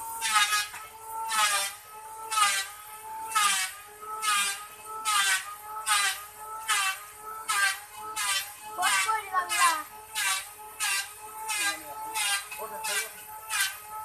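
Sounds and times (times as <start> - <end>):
wood lathe squealing: 0.0 - 14.0.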